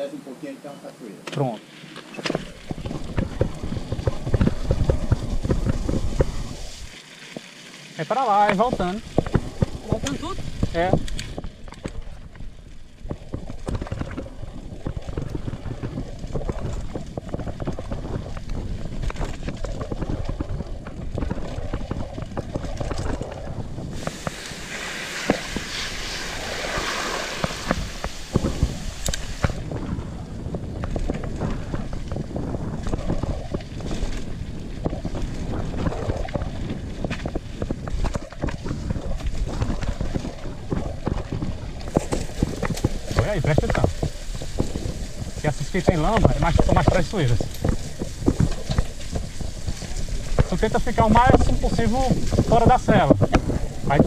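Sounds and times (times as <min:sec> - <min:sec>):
bike tyres on dirt: 0:00.0 - 0:54.0
bike rattling over bumps: 0:02.0 - 0:54.0
wind on microphone: 0:02.1 - 0:06.9, 0:08.6 - 0:54.0
tyres hissing through mud: 0:23.9 - 0:29.6.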